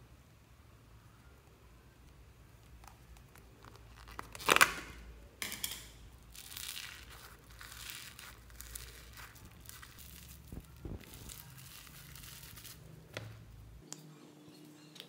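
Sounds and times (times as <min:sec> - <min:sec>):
crunchy slime rustling: 0:02.6 - 0:05.2, 0:06.1 - 0:13.8.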